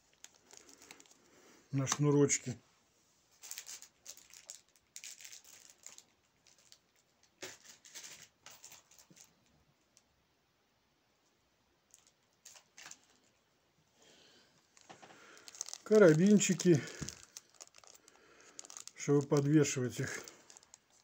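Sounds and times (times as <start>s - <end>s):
plastic bags crinkling: 0.0s - 2.2s, 3.4s - 9.5s, 11.9s - 13.4s, 14.6s - 21.0s.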